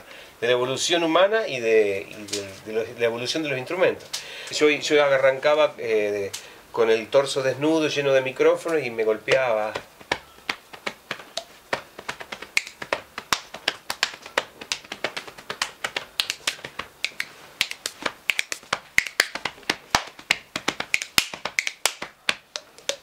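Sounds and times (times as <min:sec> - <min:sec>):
hand slaps and clicks: 0:09.3 - 0:23.0
finger snaps: 0:12.1 - 0:20.1, 0:20.7 - 0:23.0.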